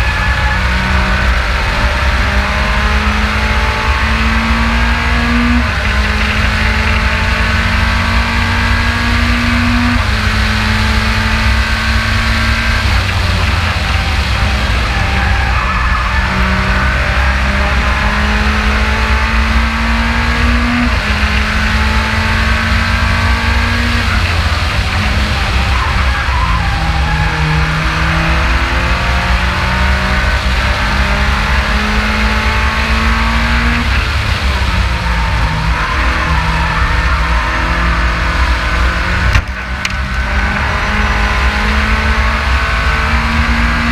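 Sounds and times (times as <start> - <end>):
race car engine rumble: 0.0 - 43.9
wind and road noise: 0.0 - 43.9.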